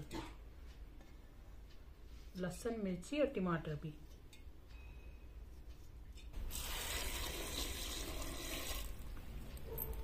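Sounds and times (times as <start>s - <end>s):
water pouring and splashing: 6.5s - 9.0s.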